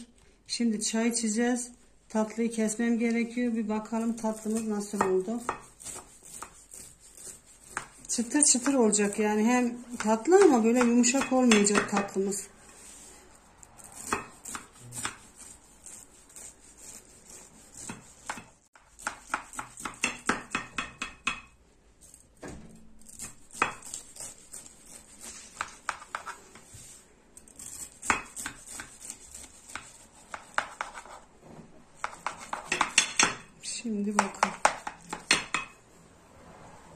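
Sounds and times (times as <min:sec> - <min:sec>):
knife crunching through pastry: 0:04.0 - 0:09.2, 0:12.9 - 0:20.0, 0:23.0 - 0:31.2.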